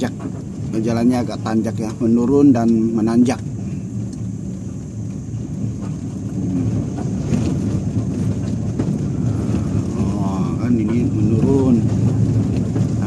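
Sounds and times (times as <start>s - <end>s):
car engine rumble: 0.0s - 13.0s
tyre noise: 4.3s - 13.0s.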